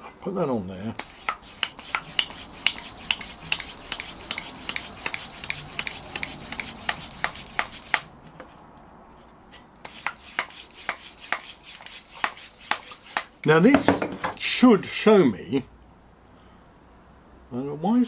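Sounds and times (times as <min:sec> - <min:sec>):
bicycle pump rasping clicks: 0:01.0 - 0:08.1.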